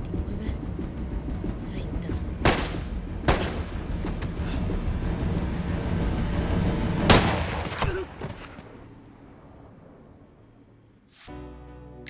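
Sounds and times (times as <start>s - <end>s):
film score music: 0.0s - 12.0s
gunshots with echo: 2.4s - 3.8s.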